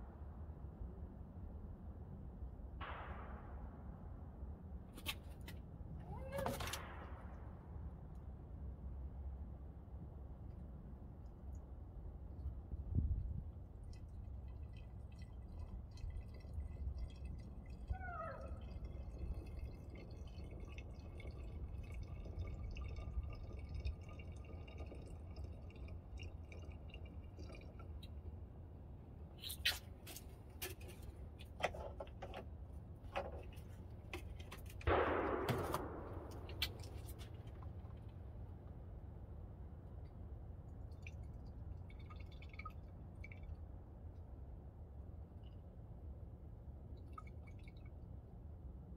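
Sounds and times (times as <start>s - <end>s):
liquid trickling and dripping: 9.9s - 34.9s, 36.0s - 48.9s.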